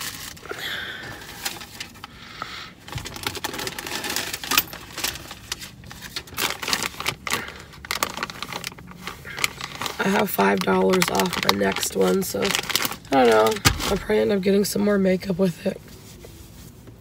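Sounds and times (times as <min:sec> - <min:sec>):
small items clicking and rustling: 0:02.9 - 0:14.1.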